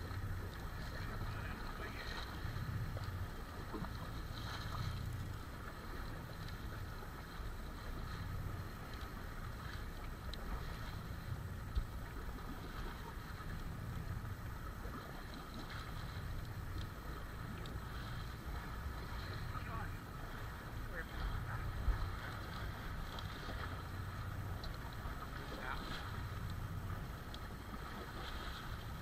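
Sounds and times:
water noise: 0.0 - 29.0
wind: 0.0 - 29.0.

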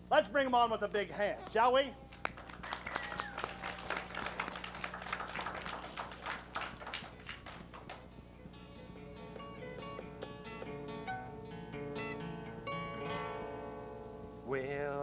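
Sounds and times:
children clapping: 1.4 - 8.2.

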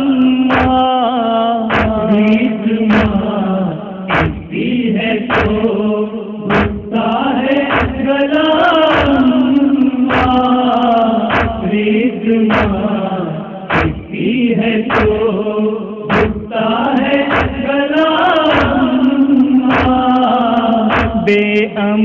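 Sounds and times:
men chanting a lament: 0.0 - 22.0
chest-beating slaps: 0.5 - 0.9, 1.7 - 2.2, 2.9 - 3.2, 4.1 - 4.6, 5.3 - 5.7, 6.5 - 7.0, 7.7 - 8.0, 8.8 - 9.2, 10.1 - 10.4, 11.3 - 11.7, 12.5 - 12.8, 13.7 - 14.2, 14.9 - 15.3, 16.1 - 16.5, 17.3 - 17.6, 18.4 - 18.9, 19.7 - 20.1, 20.9 - 21.3.

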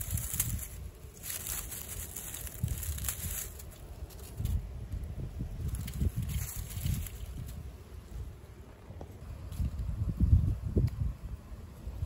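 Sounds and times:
dry leaves crackling and rustling: 0.0 - 8.3
wind rumble on microphone: 0.0 - 12.0.

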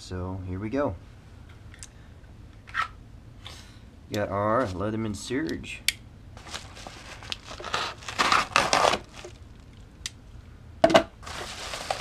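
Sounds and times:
knife slitting paper mailer: 6.4 - 9.3
paper tearing and crinkling: 6.4 - 9.4, 11.2 - 12.0.

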